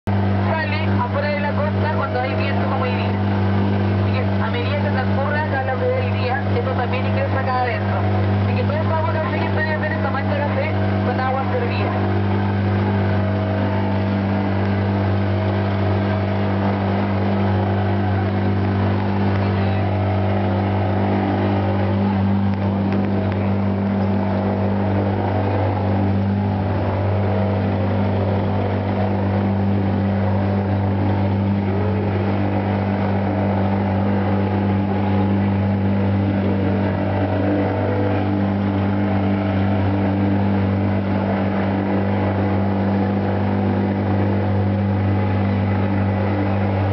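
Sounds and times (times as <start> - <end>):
boat engine droning: 0.0 - 46.9
water washing along hull: 0.0 - 46.9.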